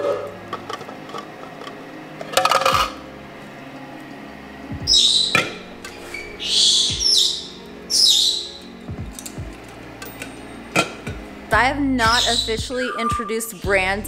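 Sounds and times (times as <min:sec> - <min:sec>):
parrot squawking: 0:04.9 - 0:08.8, 0:12.1 - 0:13.6.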